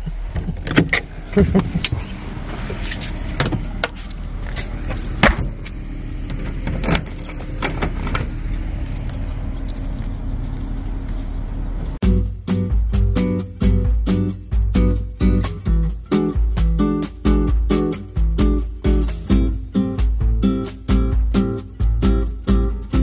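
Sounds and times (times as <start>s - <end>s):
car door being worked: 0.3s - 8.4s
keys jangling: 4.5s - 5.7s, 6.7s - 8.3s.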